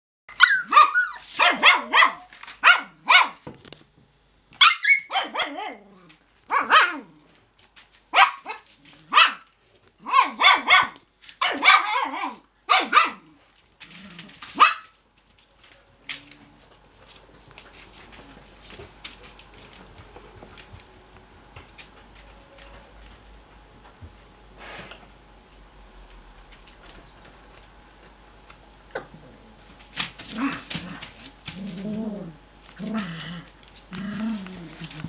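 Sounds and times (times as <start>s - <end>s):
puppies yapping: 0.3s - 2.8s, 4.6s - 5.8s.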